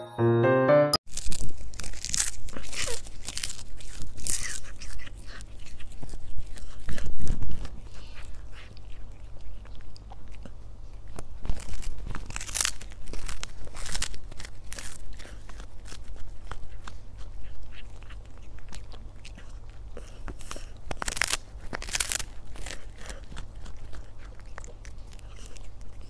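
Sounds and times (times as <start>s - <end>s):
cat crunching dried fish: 1.1s - 26.0s.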